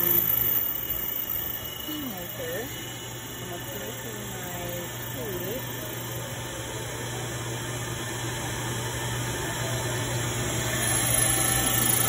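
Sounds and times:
key cutting machine whirring: 0:10.4 - 0:12.0.

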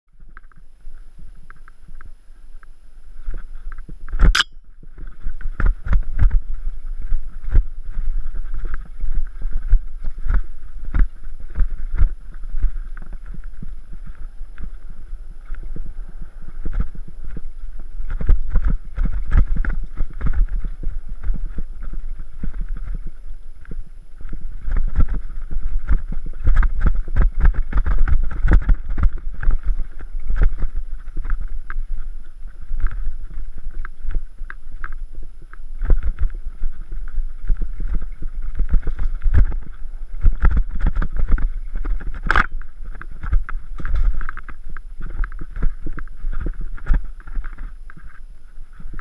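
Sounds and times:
bike rattling over bumps: 0:35.8 - 0:49.0.

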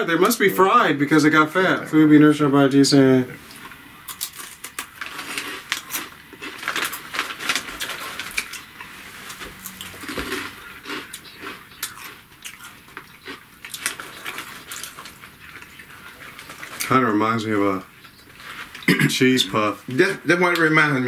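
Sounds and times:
plastic bag crinkling: 0:04.1 - 0:11.5, 0:13.6 - 0:17.0
crisps being crunched and chewed: 0:04.1 - 0:17.0.

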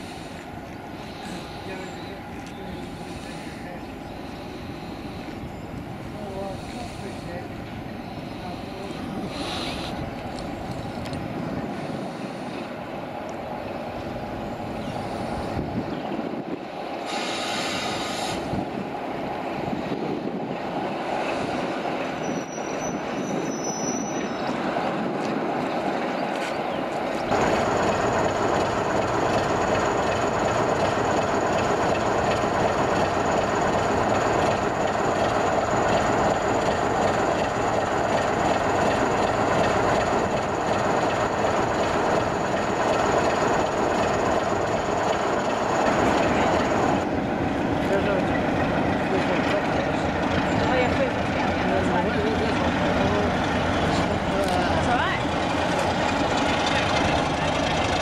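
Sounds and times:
diesel locomotive passing: 0:00.0 - 0:58.0
steady high squeal: 0:22.0 - 0:24.6.

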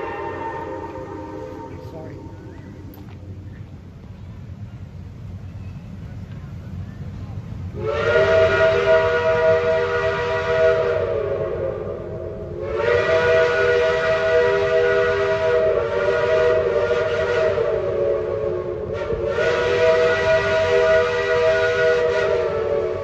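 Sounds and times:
steam locomotive chime whistle: 0:00.0 - 0:02.8, 0:07.8 - 0:23.0.

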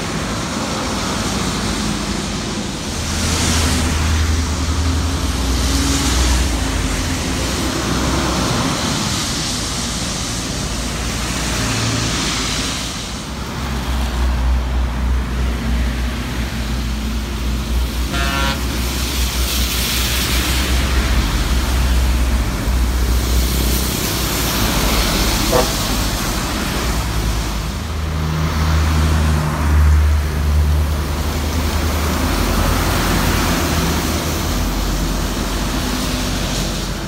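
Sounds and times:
tyres hissing on wet road: 0:00.0 - 0:37.0.

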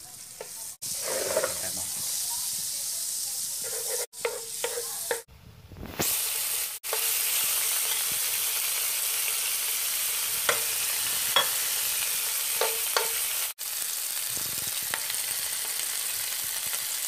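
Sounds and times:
butter sizzling in frying pan: 0:00.0 - 0:05.3, 0:05.9 - 0:17.0
shrimp frying: 0:00.0 - 0:17.0
wooden spatula scraping pan: 0:00.4 - 0:02.2, 0:03.6 - 0:05.3
metal utensil tapping: 0:11.4 - 0:11.6, 0:12.6 - 0:13.2.

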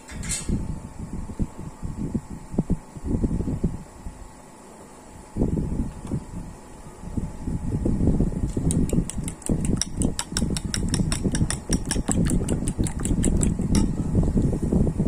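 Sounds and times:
chopsticks beating eggs in bowl: 0:08.6 - 0:13.9.

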